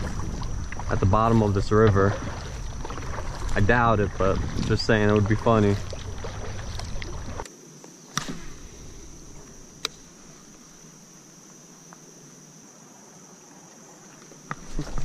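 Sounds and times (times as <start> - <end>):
low rumble of movement: 0.0 - 7.4
sharp clicks: 9.8 - 10.1.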